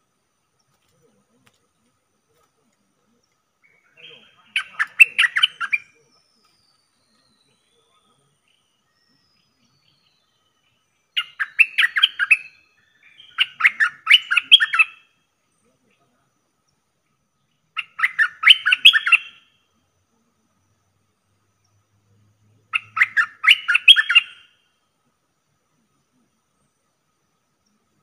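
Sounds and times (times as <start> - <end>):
bird chattering calls: 3.6 - 6.6, 11.1 - 15.1, 17.7 - 19.5, 22.6 - 24.6.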